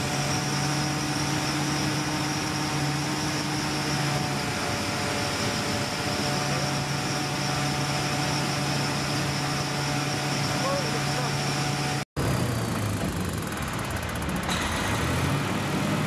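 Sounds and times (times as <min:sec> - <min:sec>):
engine and pump hum: 0:00.0 - 0:16.0.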